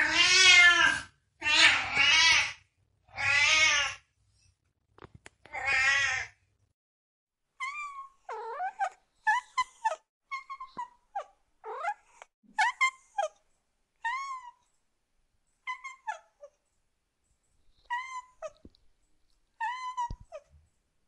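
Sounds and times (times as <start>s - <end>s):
cat meowing: 0.0s - 4.0s.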